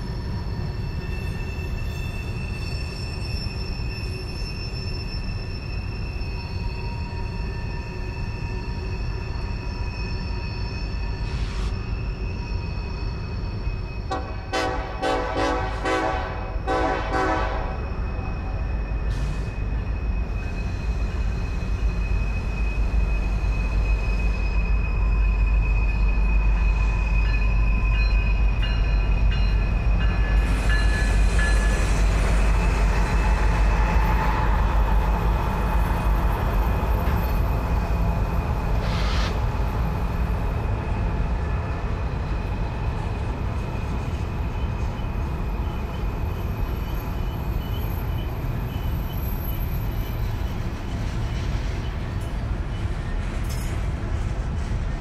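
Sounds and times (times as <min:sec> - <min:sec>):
wheels squealing: 0:00.0 - 0:14.1
rumble of locomotives and freight cars: 0:00.0 - 0:55.0
locomotive air horn: 0:14.1 - 0:17.8, 0:38.8 - 0:39.4.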